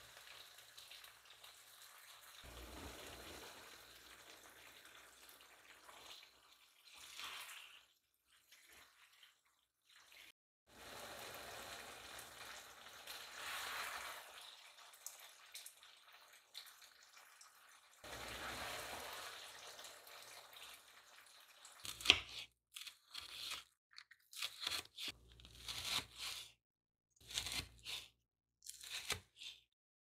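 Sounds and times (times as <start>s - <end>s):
sauce sizzling in a pan: 2.4s - 4.9s, 10.7s - 14.4s, 18.0s - 20.0s
knife cutting on wooden board: 21.9s - 23.7s, 24.3s - 26.6s, 27.2s - 29.6s.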